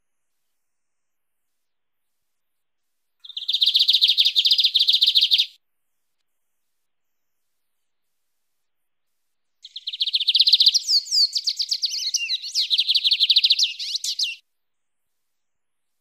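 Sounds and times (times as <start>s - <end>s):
bird singing high repeated notes: 3.2s - 5.6s, 9.6s - 14.4s.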